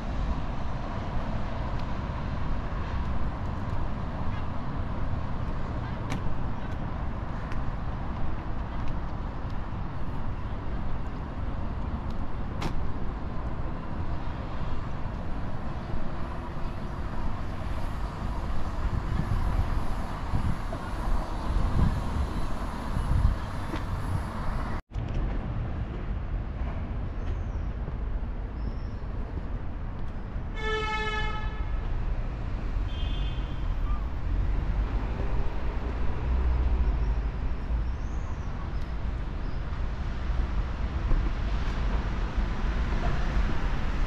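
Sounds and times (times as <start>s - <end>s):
city traffic rumble: 0.0s - 44.0s
vehicle horn toot: 30.6s - 31.8s, 32.9s - 33.6s.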